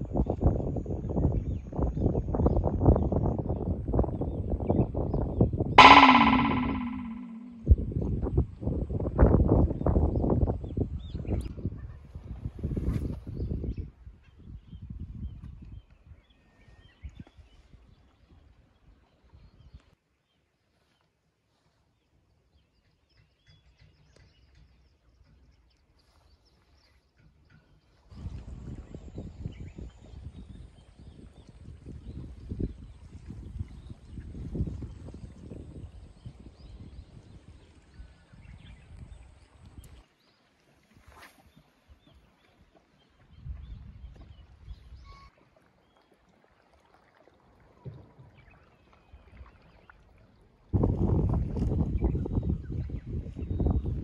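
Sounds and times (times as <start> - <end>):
wind rumble on microphone: 0.0 - 18.4, 28.1 - 40.0, 43.1 - 45.3, 50.7 - 54.0
faint high chirps: 5.8 - 7.7
wind buffeting microphone: 43.3 - 45.0, 50.8 - 54.0.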